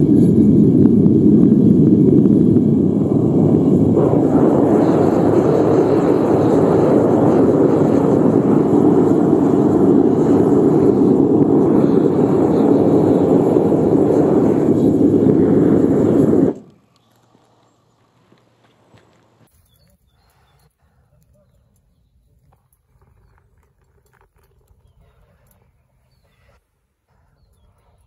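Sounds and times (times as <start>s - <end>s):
gas burner rushing: 0.0s - 17.7s.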